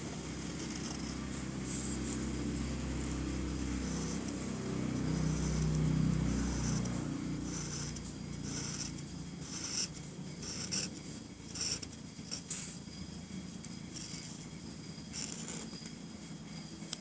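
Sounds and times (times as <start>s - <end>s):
marker scratching on paper: 0.4s - 12.8s.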